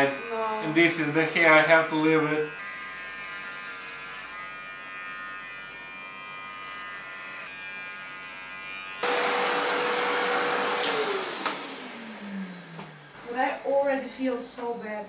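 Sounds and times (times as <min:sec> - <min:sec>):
electric hair clippers buzzing: 0:00.0 - 0:13.6
vacuum cleaner running: 0:09.0 - 0:13.6.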